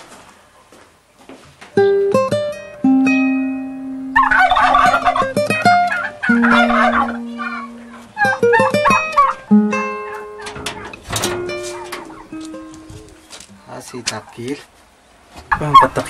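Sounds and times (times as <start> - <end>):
plucked string music: 1.8 - 13.5
fowl calling: 4.0 - 14.4, 15.5 - 16.0.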